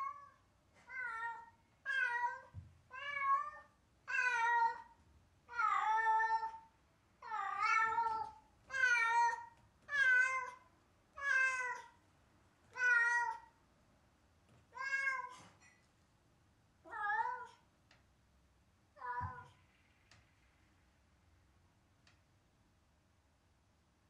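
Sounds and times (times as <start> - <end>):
cat meowing: 0.0 - 4.9, 7.2 - 10.6, 11.2 - 12.0, 12.7 - 13.5, 14.7 - 15.5.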